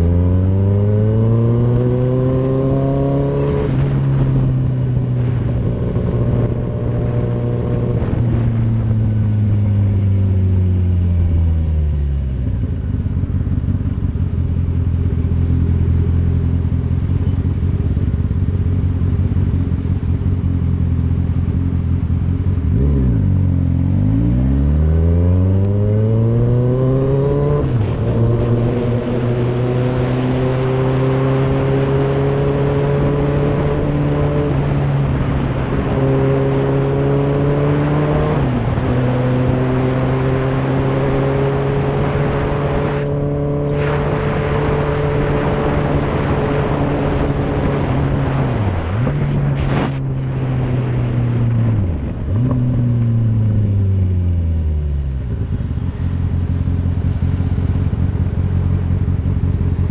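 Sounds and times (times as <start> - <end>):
motorcycle engine accelerating: 0.0 - 59.9
wet road and wind noise: 0.0 - 59.9.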